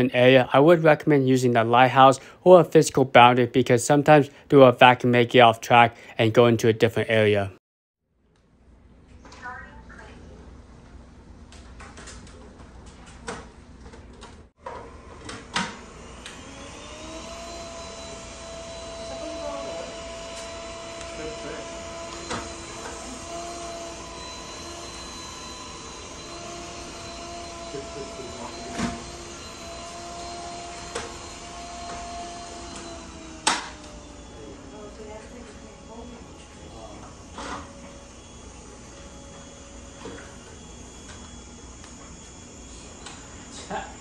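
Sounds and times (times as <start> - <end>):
robot vacuum motor hum: 15.7 - 44.0.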